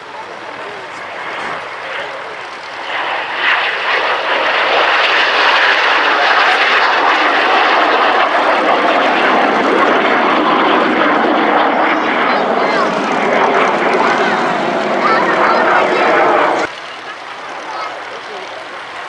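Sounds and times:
jet aircraft flying past: 0.0 - 19.0.

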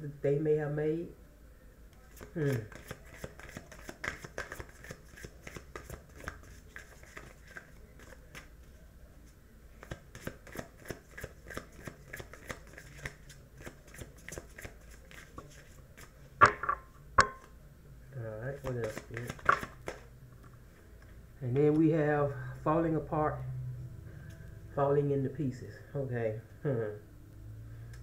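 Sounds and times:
cards being shuffled: 2.1 - 8.5, 9.8 - 16.2, 18.6 - 20.1.

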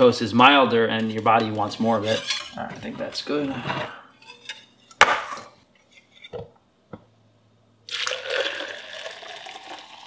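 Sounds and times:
liquid pouring into a cup: 7.9 - 10.0.

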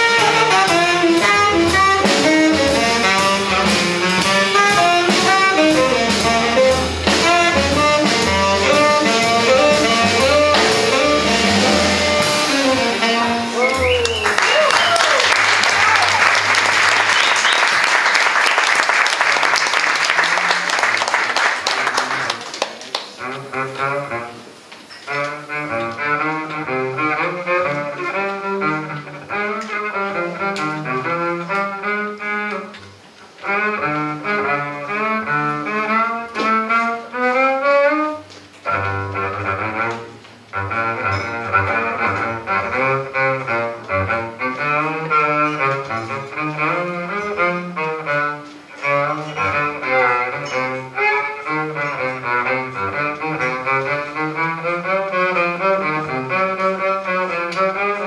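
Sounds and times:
double bass solo: 0.0 - 14.6, 23.2 - 58.0
audience applause: 13.6 - 23.2.

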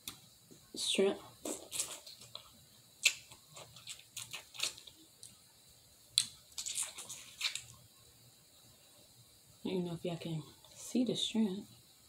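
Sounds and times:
shrimp shell crackling: 1.4 - 5.4, 6.2 - 7.8
wet mouth smacks: 3.0 - 5.3.

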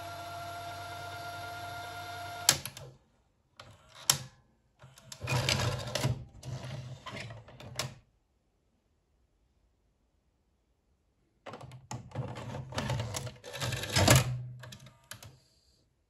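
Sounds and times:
tape player motor hum: 0.0 - 2.7.

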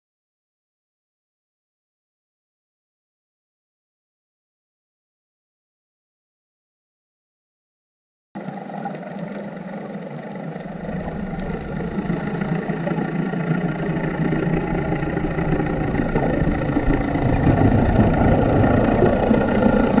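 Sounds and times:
engine drone heard underwater: 8.4 - 20.0.

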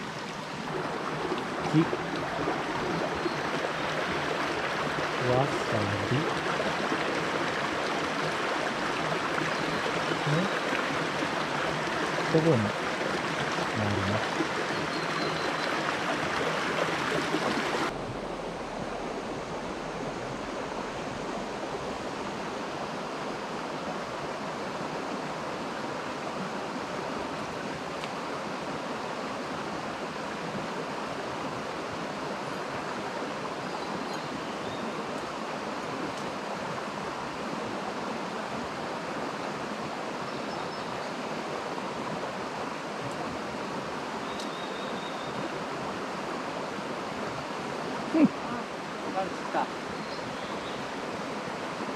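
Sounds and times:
stream flowing over stones: 0.0 - 51.9.

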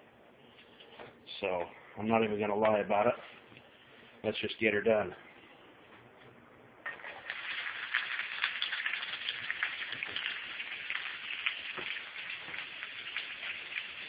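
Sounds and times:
vegetables sizzling in a skillet: 6.9 - 14.0.

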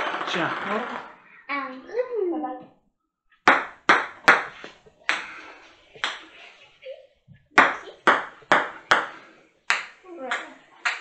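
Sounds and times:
ping-pong ball bouncing on table: 3.5 - 4.5, 7.6 - 11.0.

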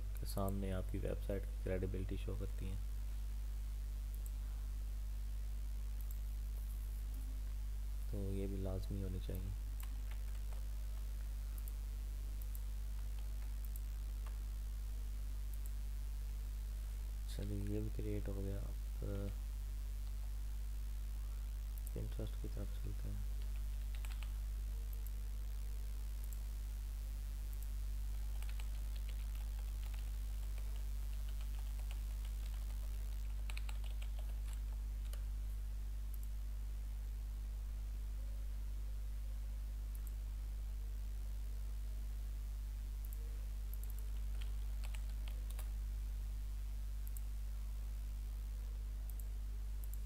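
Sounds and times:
low electrical hum: 0.0 - 50.0
keyboard typing: 9.8 - 10.7, 23.4 - 24.4, 28.3 - 35.2, 43.8 - 45.7
computer mouse clicks: 39.9 - 40.2, 43.0 - 45.7, 49.1 - 50.0.

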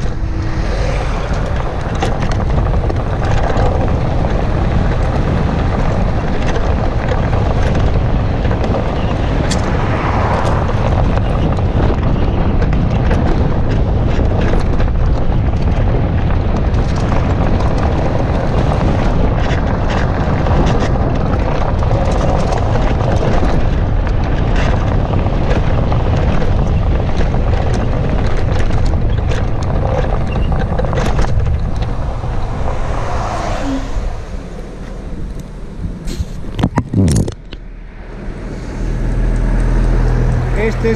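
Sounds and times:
wind buffeting microphone: 0.0 - 40.9
scooter knocks and rattles: 1.1 - 33.0.

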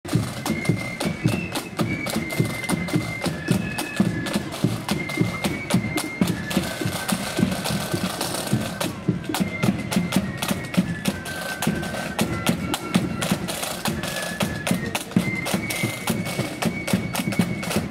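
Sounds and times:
flutes playing melody: 0.1 - 17.9
snare drums: 0.1 - 17.9.

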